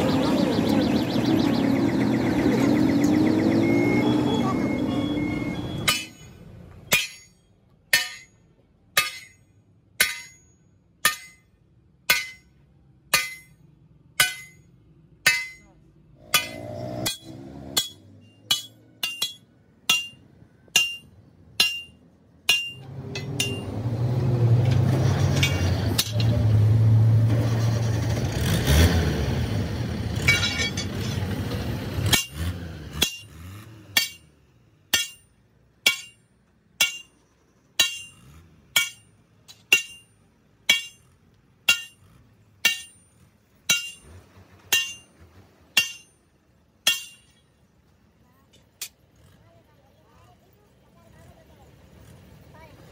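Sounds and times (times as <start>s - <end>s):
sledgehammer striking steel: 5.8s - 8.4s, 9.0s - 13.6s, 14.2s - 23.8s, 25.2s - 26.3s, 32.0s - 47.5s.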